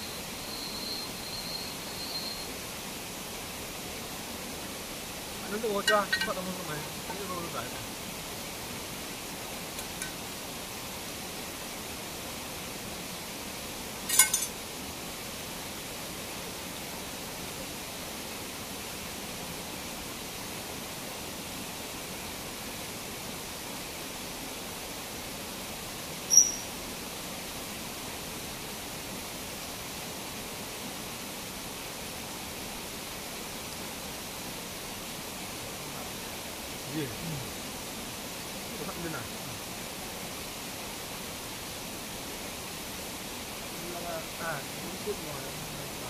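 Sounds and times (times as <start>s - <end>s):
waterfall roaring: 2.5s - 26.0s, 26.8s - 46.0s
brief high-pitched chirp: 26.3s - 26.7s.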